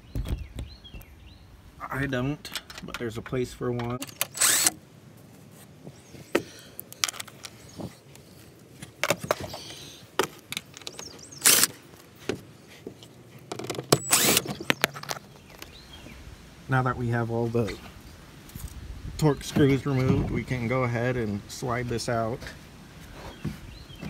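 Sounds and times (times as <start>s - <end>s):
loose bolts rattling: 2.4s - 4.7s.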